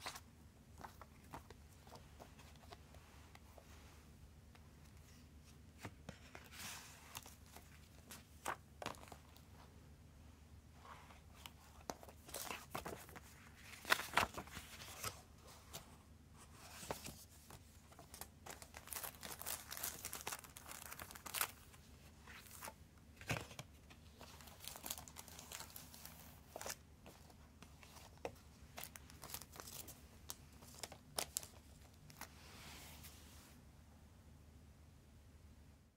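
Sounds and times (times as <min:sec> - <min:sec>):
paper and plastic crinkling: 0:11.4 - 0:15.2, 0:16.7 - 0:32.3.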